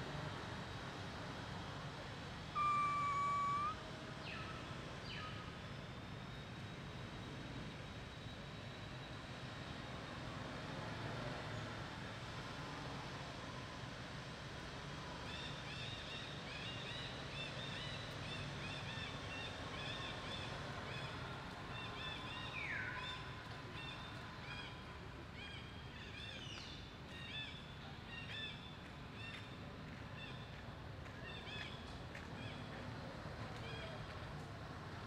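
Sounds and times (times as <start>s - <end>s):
animal chirping: 2.6s - 3.8s
falling squeal: 2.6s - 3.8s
high falling call: 2.6s - 3.8s.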